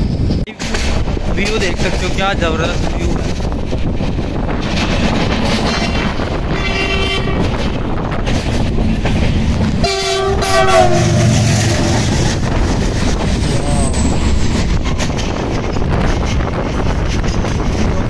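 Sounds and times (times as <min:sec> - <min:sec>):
moving train rumble: 0:00.0 - 0:18.0
train horn blasts: 0:06.5 - 0:07.6, 0:09.8 - 0:12.2.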